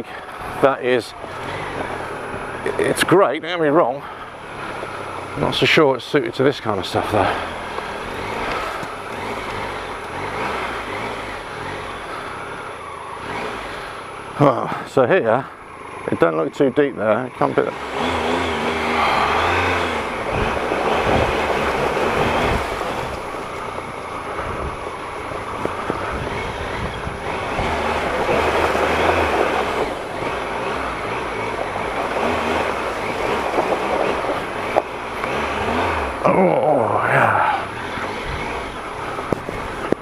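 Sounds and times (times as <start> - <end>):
motorcycle engine running: 0.0 - 40.0
tyres rushing through mud: 0.0 - 40.0
knocks from ruts: 4.4 - 12.5, 17.6 - 36.6.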